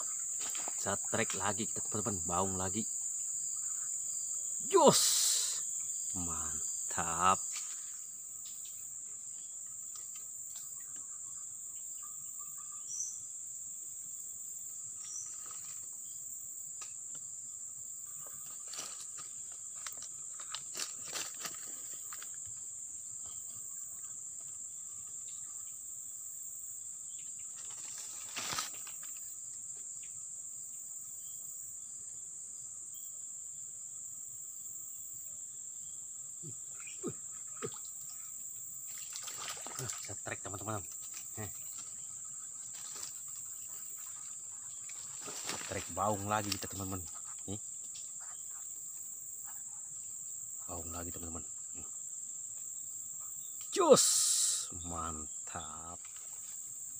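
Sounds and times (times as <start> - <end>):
high-pitched insect drone: 0.0 - 32.0, 34.0 - 56.9.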